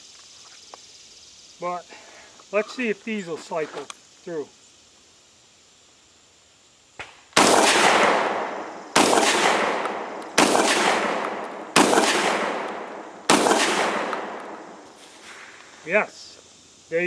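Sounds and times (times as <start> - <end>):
shotgun shots echoing: 7.4 - 15.4.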